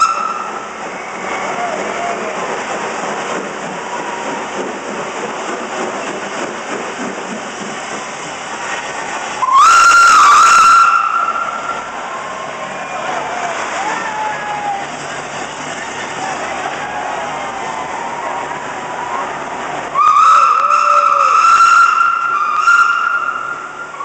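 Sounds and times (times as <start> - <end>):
steam whistle blast: 0.0 - 1.8, 9.4 - 12.1, 19.9 - 24.0
steam train hissing and rumbling: 0.0 - 24.0.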